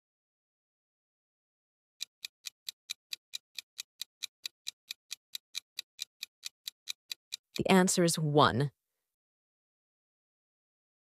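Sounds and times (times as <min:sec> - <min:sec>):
clock ticking: 0:02.0 - 0:08.6.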